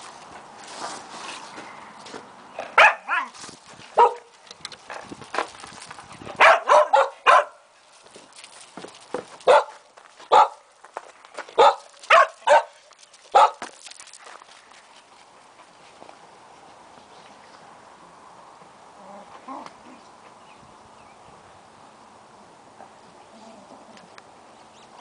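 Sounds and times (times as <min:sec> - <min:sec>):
dog barking: 0:02.8 - 0:03.3, 0:04.0 - 0:04.3, 0:06.4 - 0:07.6, 0:09.5 - 0:10.6, 0:11.6 - 0:13.6.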